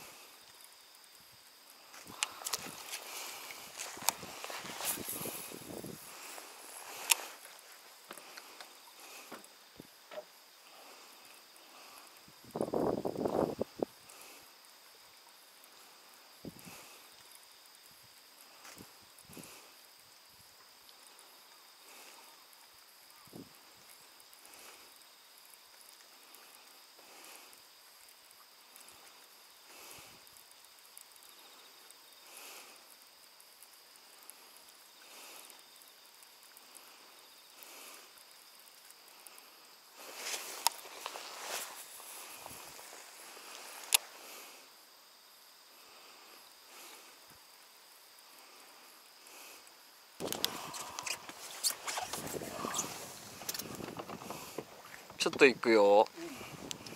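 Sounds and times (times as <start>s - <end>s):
thin steady whine: 0.0s - 17.7s
insect trill: 0.0s - 56.9s
rain hissing on water: 0.0s - 56.9s.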